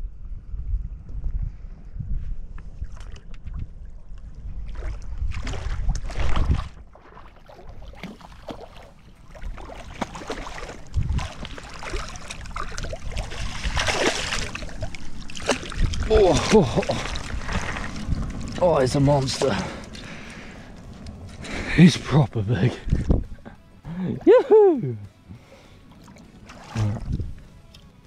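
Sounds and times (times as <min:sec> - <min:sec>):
wind buffeting microphone: 0:00.0 - 0:06.9, 0:10.5 - 0:23.6, 0:26.8 - 0:27.5
fish splashing in water: 0:04.7 - 0:18.6, 0:25.9 - 0:27.0.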